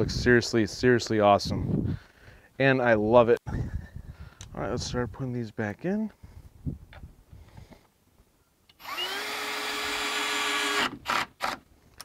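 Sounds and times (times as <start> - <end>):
cordless drill motor spinning: 8.7 - 11.6.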